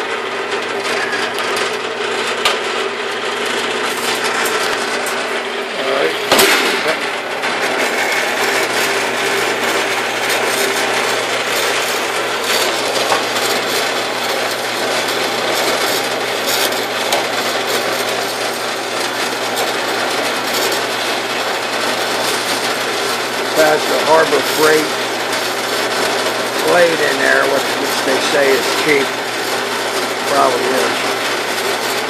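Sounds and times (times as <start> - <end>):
bandsaw cutting metal: 0.0 - 32.0
low motor hum: 0.0 - 32.0.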